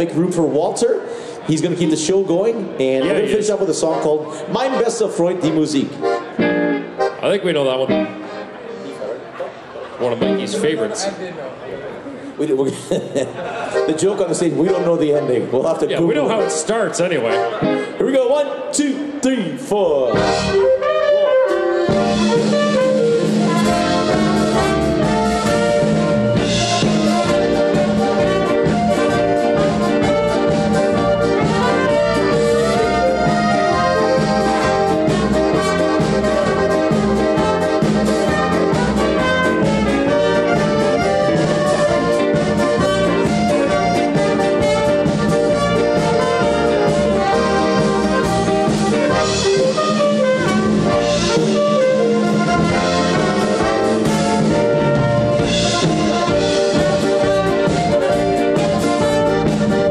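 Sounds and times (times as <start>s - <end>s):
live band music: 0.0s - 11.1s, 13.5s - 59.9s
piano accordions: 3.0s - 10.9s, 13.5s - 18.1s, 20.1s - 59.9s
trumpet melody: 20.1s - 59.9s.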